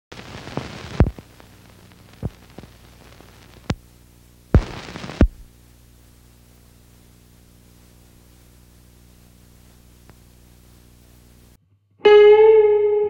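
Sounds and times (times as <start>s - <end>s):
record pops and clicks: 0.1s - 11.6s.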